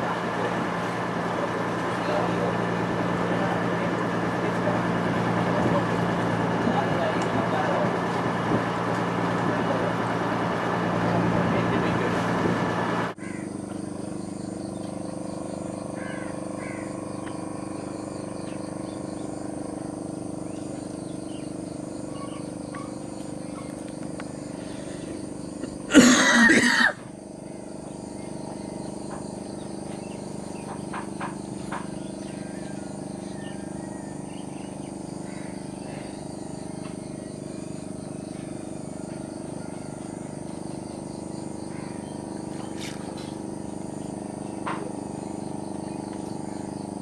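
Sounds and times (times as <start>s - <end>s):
boat engine running: 0.0s - 47.0s
steady hum: 0.0s - 47.0s
bird chirps: 20.4s - 25.2s.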